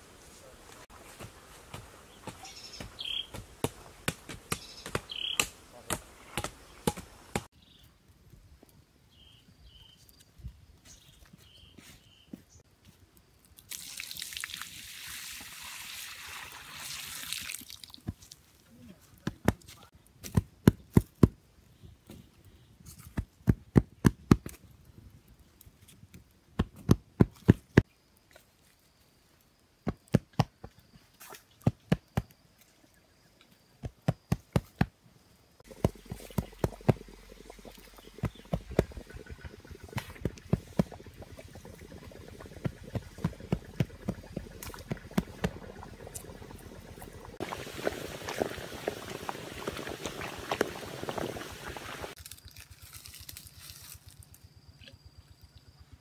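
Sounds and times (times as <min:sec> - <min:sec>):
water pouring: 0:13.6 - 0:18.5, 0:35.6 - 0:52.2
water boiling and bubbling: 0:13.6 - 0:18.6, 0:35.6 - 0:52.2
wood fire crackling: 0:35.6 - 0:54.3.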